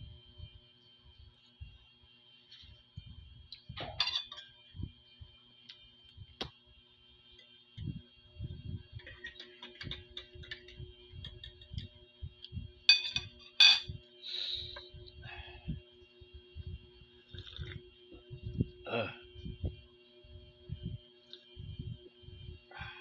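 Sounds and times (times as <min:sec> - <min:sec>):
metal fork clinking on plate: 0:04.0 - 0:04.4.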